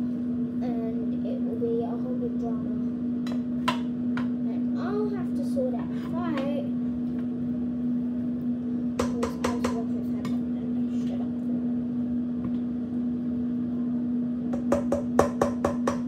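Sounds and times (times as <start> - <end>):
household appliance humming: 0.0 - 16.0.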